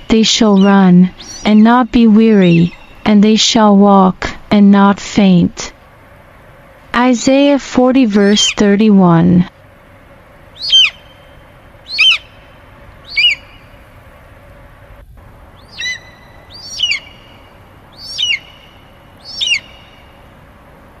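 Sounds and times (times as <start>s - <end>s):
eagle cries: 0.0s - 1.6s, 10.6s - 13.7s, 15.6s - 20.1s.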